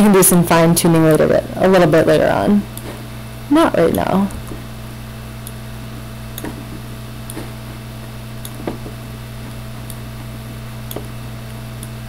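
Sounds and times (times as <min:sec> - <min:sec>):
electrical hum: 0:00.0 - 0:12.0
computer mouse clicks: 0:06.4 - 0:07.5, 0:10.9 - 0:11.1.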